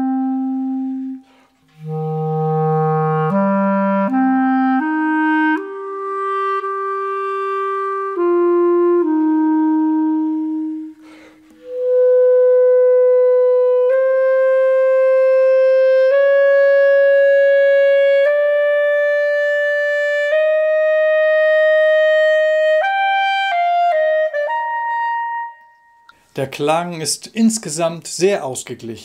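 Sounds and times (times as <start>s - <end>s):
clarinet playing long tones: 0.0s - 26.3s.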